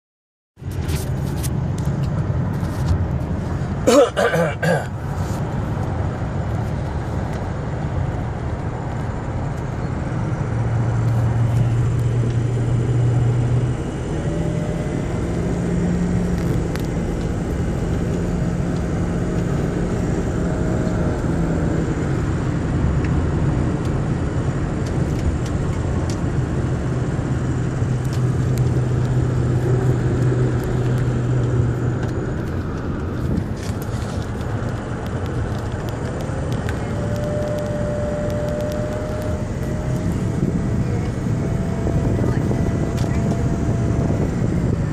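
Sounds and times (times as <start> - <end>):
engine drone inside cab: 0.6 - 44.9.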